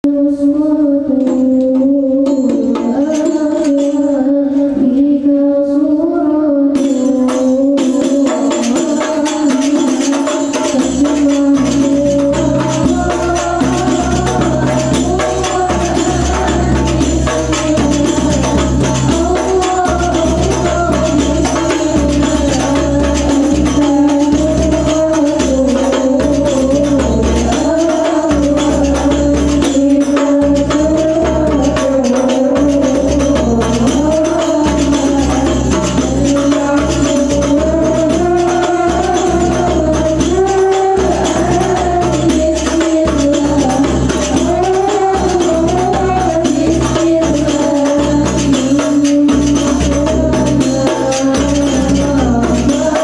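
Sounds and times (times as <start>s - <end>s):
women singing over pa: 0.0s - 53.0s
frame drums: 1.1s - 4.3s, 6.8s - 53.0s
deep drum: 10.7s - 53.0s.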